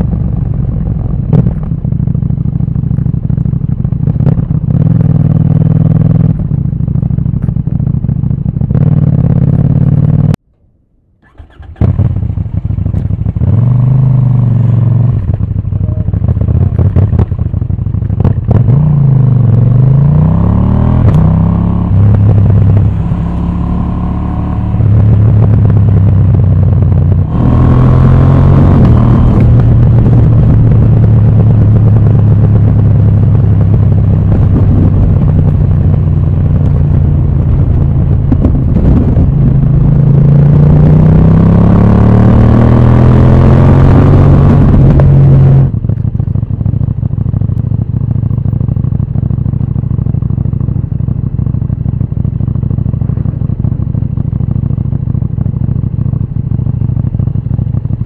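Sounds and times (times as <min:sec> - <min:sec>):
motorcycle engine accelerating: 0:00.0 - 0:10.4, 0:11.2 - 0:58.0
wind rush on microphone: 0:24.8 - 0:41.6, 0:43.9 - 0:46.9.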